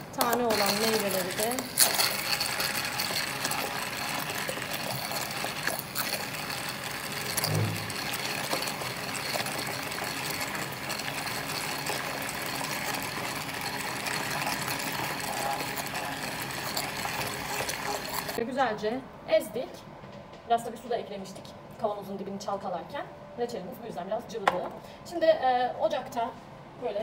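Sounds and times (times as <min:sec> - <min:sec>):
hand blender running in saucepan: 0:00.2 - 0:18.4.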